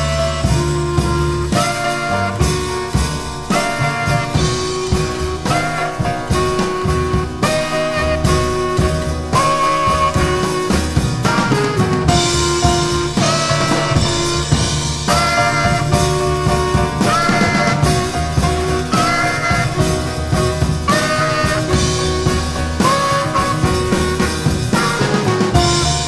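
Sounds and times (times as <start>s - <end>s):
bass clarinet: 0.0s - 26.0s
double bass: 0.0s - 26.0s
drum kit: 0.0s - 26.0s
piano: 0.0s - 26.0s.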